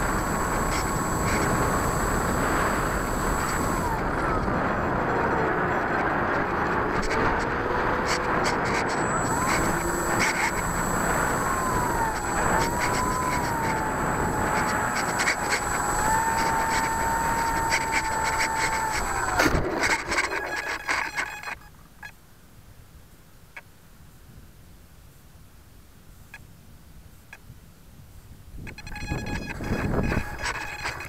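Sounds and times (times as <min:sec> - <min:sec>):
plane scraping across grass: 0:00.0 - 0:04.1
model airplane motor whining: 0:00.0 - 0:21.6, 0:28.7 - 0:31.0
wind rushing over microphone: 0:28.5 - 0:31.0.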